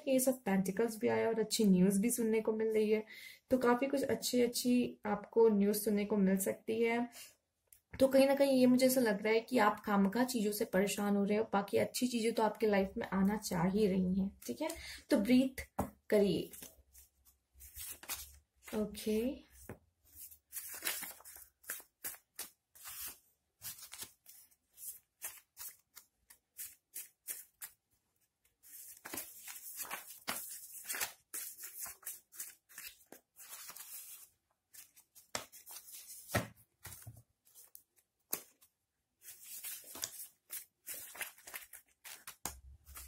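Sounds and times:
paper cards shuffled by hand: 0:16.5 - 0:18.8, 0:19.6 - 0:27.8, 0:28.6 - 0:43.0.

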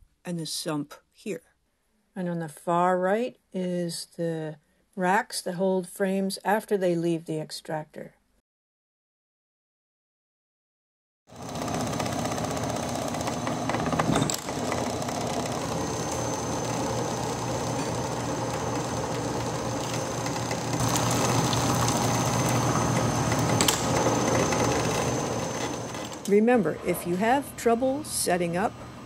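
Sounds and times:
uncapping machine running: 0:11.3 - 0:27.4.

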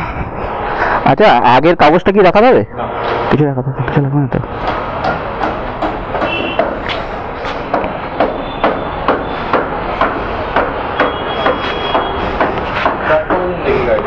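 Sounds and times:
background noise: 0:00.0 - 0:14.0
sharp knocks: 0:04.6 - 0:13.5.

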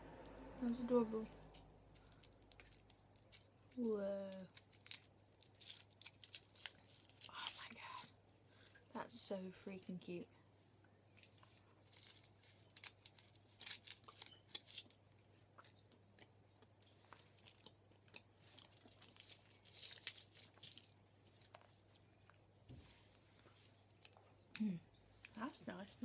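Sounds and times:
foil wrapper crinkling: 0:01.9 - 0:08.1, 0:11.2 - 0:15.0, 0:18.4 - 0:22.0.

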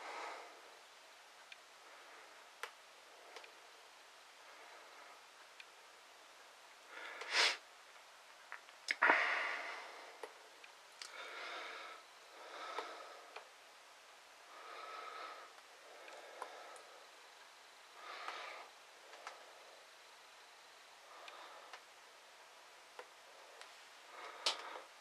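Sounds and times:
breathing through the nose: 0:06.9 - 0:07.6
person sniffing: 0:07.2 - 0:07.6, 0:09.0 - 0:09.8.

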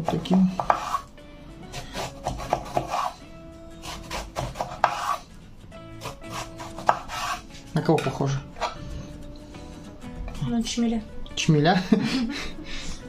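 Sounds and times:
background music with held notes: 0:00.0 - 0:13.0
knife slicing on cutting board: 0:00.6 - 0:01.1, 0:01.8 - 0:03.2, 0:03.8 - 0:05.2, 0:06.0 - 0:07.6.

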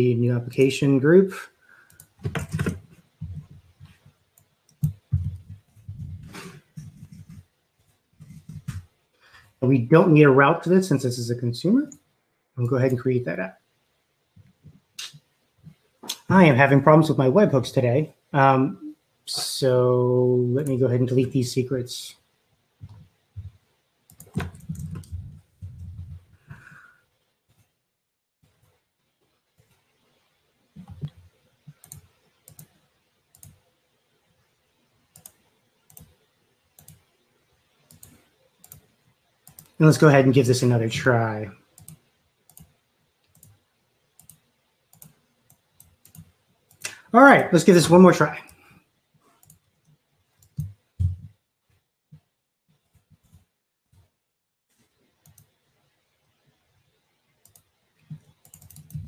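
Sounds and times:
computer mouse clicks: 0:01.9 - 0:05.7, 0:24.1 - 0:25.9, 0:30.8 - 0:33.6, 0:35.1 - 0:37.2, 0:37.8 - 0:39.8, 0:41.7 - 0:47.0, 0:48.4 - 0:50.9, 0:54.7 - 0:56.4, 0:57.3 - 0:59.0.

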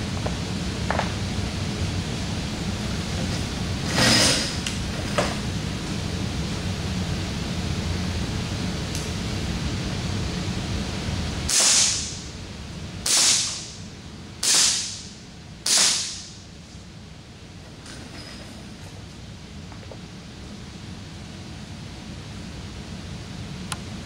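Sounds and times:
air pistol shots: 0:11.5 - 0:12.2, 0:13.0 - 0:13.8, 0:14.4 - 0:16.4.

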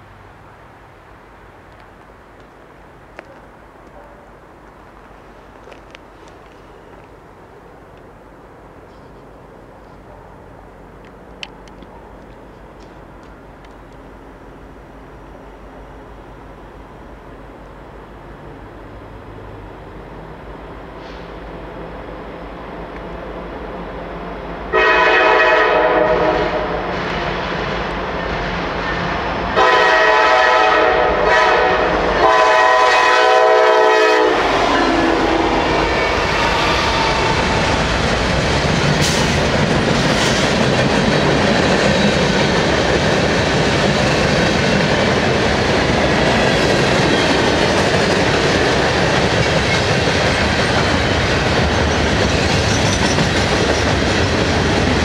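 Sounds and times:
train horn blasts: 0:24.7 - 0:26.9, 0:29.6 - 0:37.4
locomotives passing: 0:25.7 - 0:55.0
freight train wheel clatter: 0:35.6 - 0:55.0.

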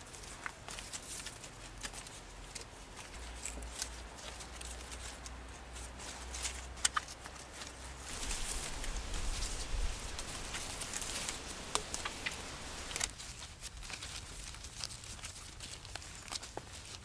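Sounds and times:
leaves rustling while weaving: 0:00.0 - 0:17.0.

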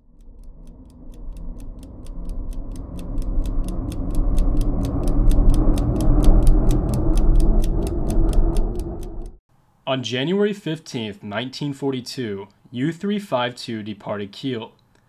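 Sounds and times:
deep cinematic drone: 0:00.0 - 0:09.4
steady ticking: 0:00.0 - 0:09.4.

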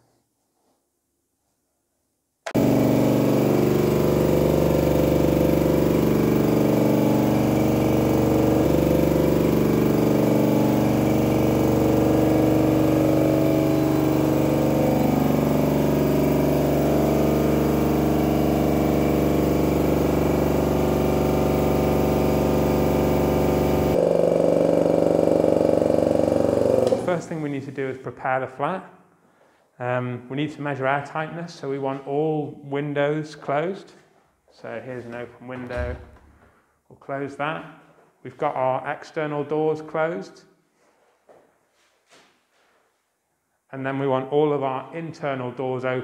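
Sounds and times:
electric air compressor humming: 0:02.5 - 0:27.6.

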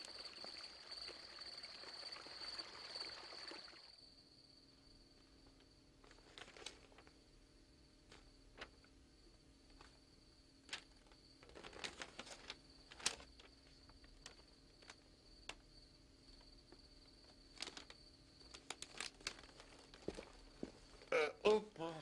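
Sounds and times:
magazine pages rustling: 0:06.0 - 0:07.2, 0:08.0 - 0:08.9, 0:10.6 - 0:15.6, 0:17.2 - 0:21.1.

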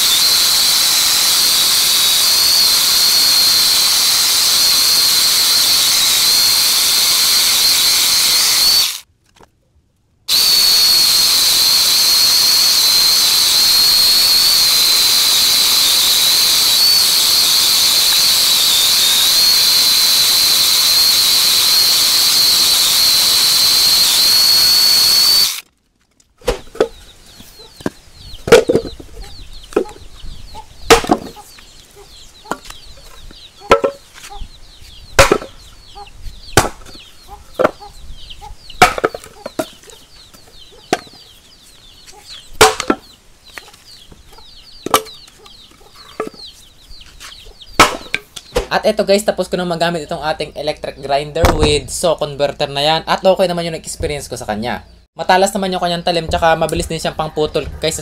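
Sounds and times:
angle grinder cutting wood: 0:00.0 - 0:09.1, 0:10.3 - 0:25.7, 0:35.1 - 0:37.9.

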